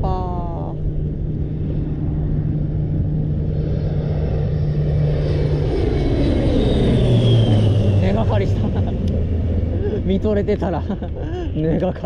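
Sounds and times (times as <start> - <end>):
aircraft engines droning: 0.0 - 12.0
high engine whine: 0.0 - 12.0.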